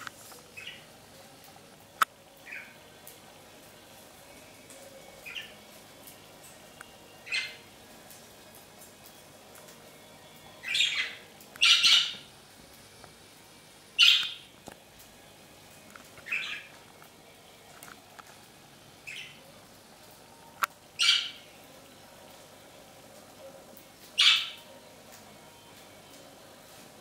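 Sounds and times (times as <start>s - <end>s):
budgerigars chirping: 10.6s - 12.3s, 14.0s - 14.4s, 24.2s - 24.6s.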